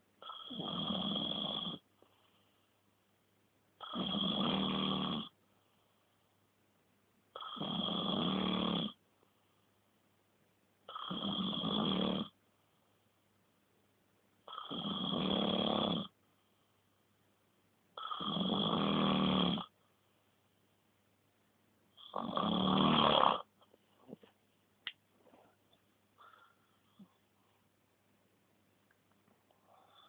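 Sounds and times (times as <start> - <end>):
pet snoring: 0.2 - 2.2, 3.8 - 5.4, 7.3 - 9.0, 10.9 - 12.4, 14.4 - 16.2, 18.0 - 19.8, 22.0 - 23.5.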